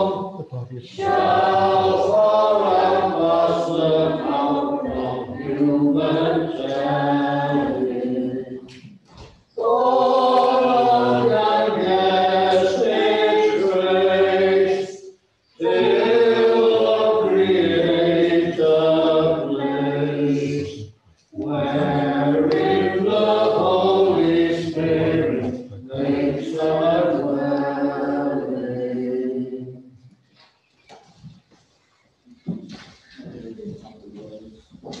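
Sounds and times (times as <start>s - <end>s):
choir singing slow chant: 0.0s - 8.8s, 9.6s - 29.9s.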